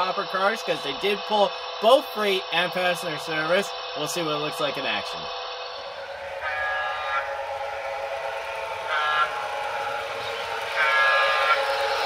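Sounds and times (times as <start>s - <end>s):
electric running hum: 0.0s - 12.0s
model train horn blasts: 5.9s - 12.0s.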